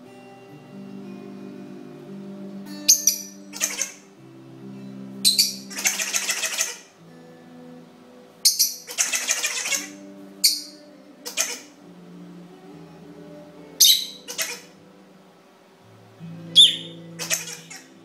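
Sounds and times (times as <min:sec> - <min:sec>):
faint background music: 0:00.0 - 0:18.0
lovebird chirping: 0:02.8 - 0:04.0, 0:05.2 - 0:06.9, 0:08.4 - 0:11.7, 0:13.8 - 0:14.8, 0:16.5 - 0:18.0.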